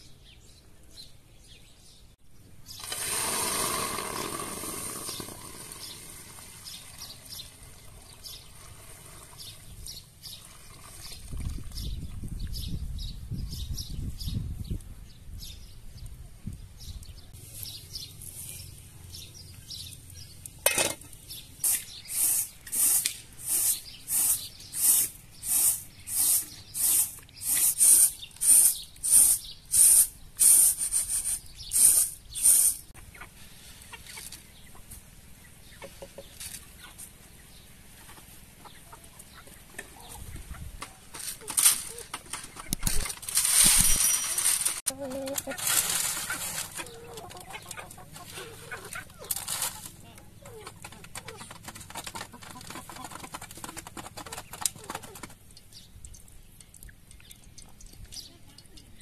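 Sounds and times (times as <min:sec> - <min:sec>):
chickens clucking: 0:31.8 - 0:43.4, 0:44.4 - 0:55.6.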